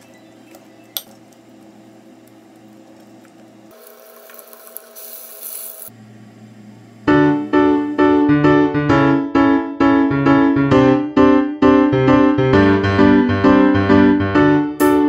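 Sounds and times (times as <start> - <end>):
oil sizzling in pan: 3.7 - 5.9
keyboard music with beat: 7.6 - 15.0.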